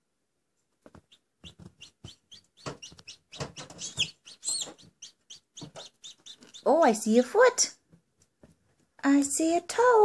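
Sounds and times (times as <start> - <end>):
chick peeping: 0.9 - 7.2.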